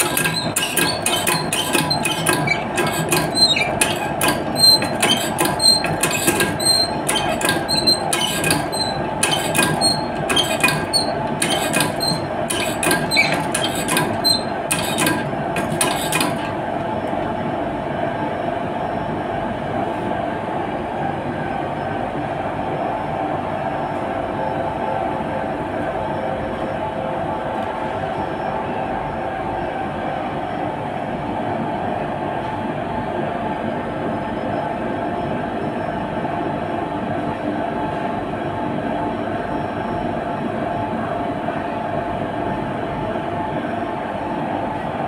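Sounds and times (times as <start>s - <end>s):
hand pump squeaky clicks: 0.0s - 16.5s
steady machinery hum: 0.0s - 45.0s.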